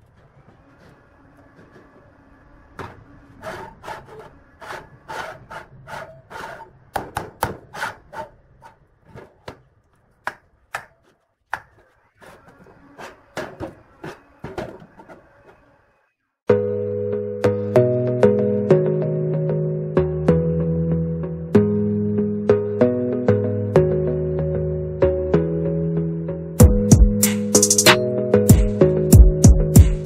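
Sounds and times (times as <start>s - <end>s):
music: 16.5s - 30.0s.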